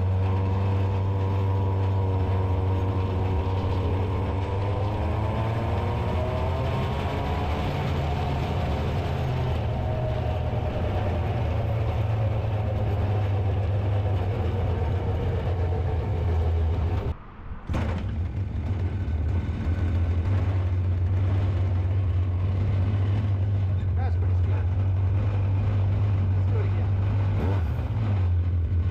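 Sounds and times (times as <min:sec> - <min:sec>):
small two-stroke engine running: 0:00.0 - 0:17.1.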